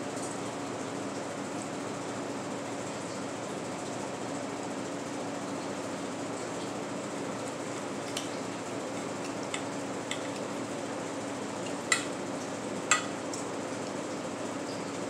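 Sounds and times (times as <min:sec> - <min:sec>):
steady hum: 0:05.8 - 0:14.5
cutlery clinking on a plate: 0:11.6 - 0:12.1, 0:12.9 - 0:13.2.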